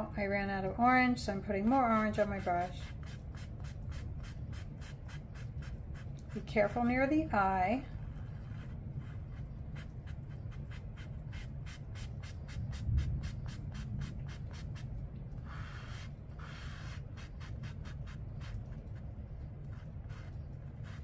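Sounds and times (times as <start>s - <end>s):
steady low hum: 0.0s - 21.0s
brush strokes on paper: 7.8s - 21.0s.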